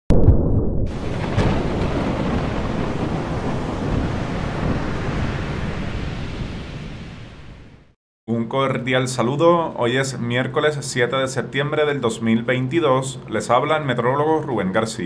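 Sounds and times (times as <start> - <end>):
rushing wind: 0.2 - 8.0
surf roar: 0.9 - 7.9.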